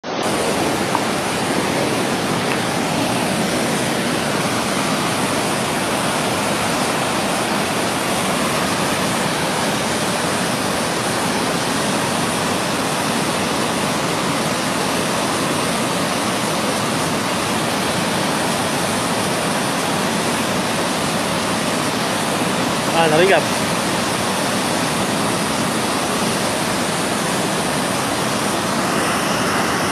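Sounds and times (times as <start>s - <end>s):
river rapids roaring: 0.0s - 29.9s.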